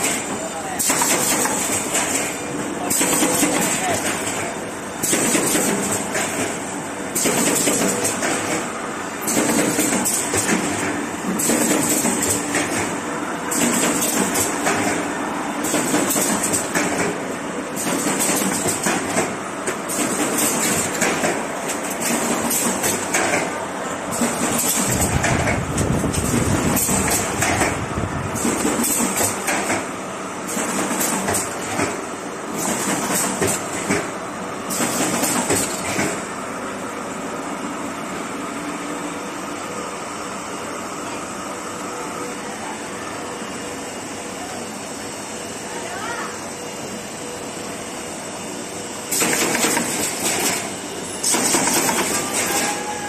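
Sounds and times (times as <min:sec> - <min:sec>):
machine clattering: 0:00.0 - 0:17.2, 0:17.8 - 0:23.5, 0:24.1 - 0:27.8, 0:28.4 - 0:29.9, 0:34.7 - 0:36.2, 0:49.1 - 0:52.8.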